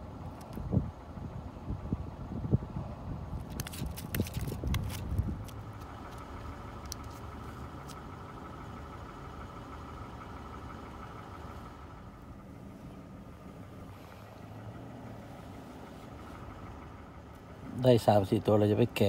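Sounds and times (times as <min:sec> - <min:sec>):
vehicle engine idling: 0:00.0 - 0:19.0
fish flopping and slapping on ice: 0:03.4 - 0:06.2.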